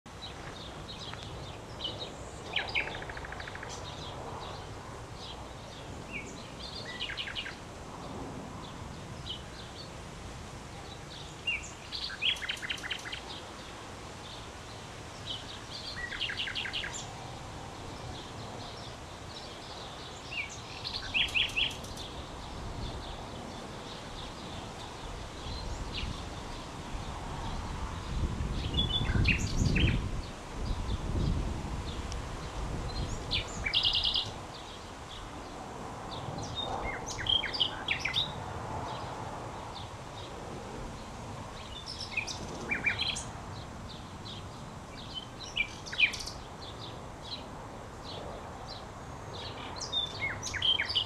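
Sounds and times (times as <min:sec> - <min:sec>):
steady outdoor background hiss: 0:00.1 - 0:51.0
nightingale singing: 0:00.2 - 0:04.6, 0:05.2 - 0:07.6, 0:10.8 - 0:13.7, 0:15.2 - 0:17.2, 0:18.0 - 0:23.2, 0:28.6 - 0:31.4, 0:32.9 - 0:35.3, 0:36.4 - 0:39.1, 0:41.6 - 0:43.3, 0:44.2 - 0:47.4, 0:49.0 - 0:51.0.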